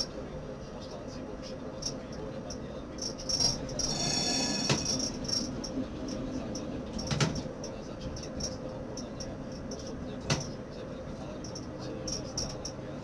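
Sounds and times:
steady low hum: 0.0s - 13.0s
tram running on rails: 0.0s - 13.0s
wheel squeal: 3.8s - 5.5s.

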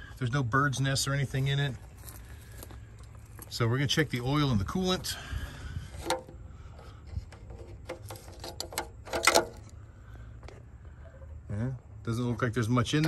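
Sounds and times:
plastic cap clicks and scrapes: 7.1s - 9.8s.

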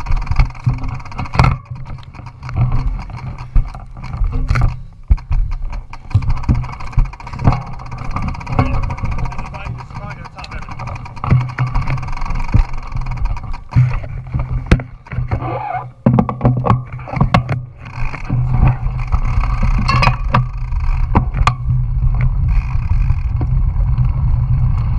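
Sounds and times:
bike rattles and knocks: 0.0s - 24.9s
wind buffeting microphone: 17.7s - 24.9s.

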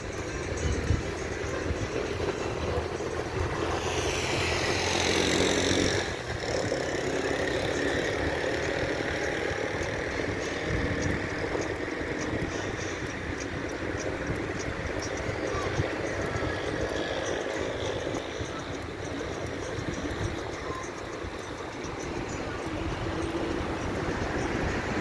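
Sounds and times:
car engine and tyre noise: 0.0s - 25.0s
vehicle passing close by: 2.5s - 11.6s.

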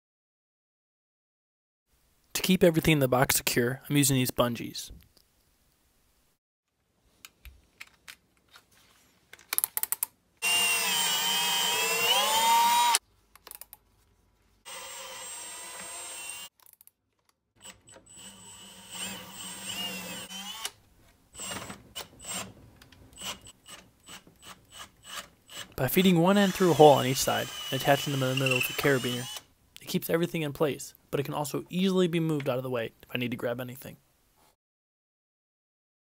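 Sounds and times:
cordless drill drilling wood: 10.4s - 13.0s, 14.7s - 16.5s, 17.6s - 20.8s, 21.4s - 22.5s, 24.4s - 29.5s.

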